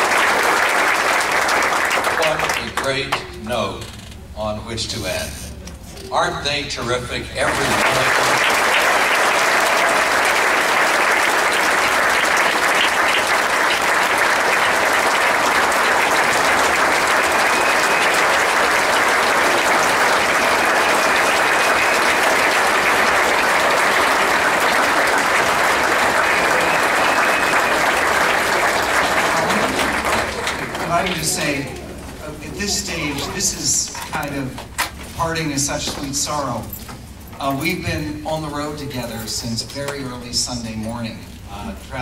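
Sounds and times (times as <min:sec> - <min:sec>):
large audience applauding: 0:00.0 - 0:03.2, 0:07.4 - 0:32.0.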